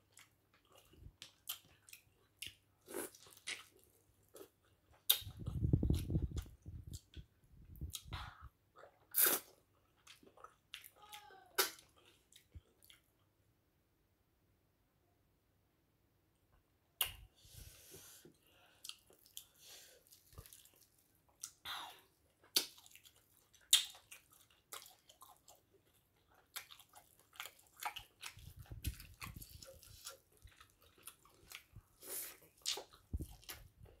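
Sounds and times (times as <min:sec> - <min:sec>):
lip smacks and clicks: 0:17.0 - 0:17.3
wet chewing: 0:18.8 - 0:34.0.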